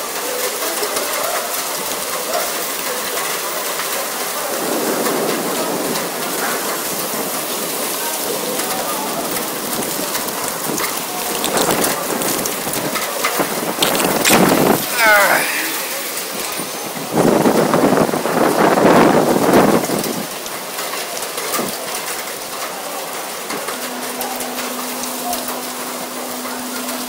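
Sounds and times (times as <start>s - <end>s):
heavy rain hissing: 0.0s - 27.0s
storm wind: 9.6s - 20.4s.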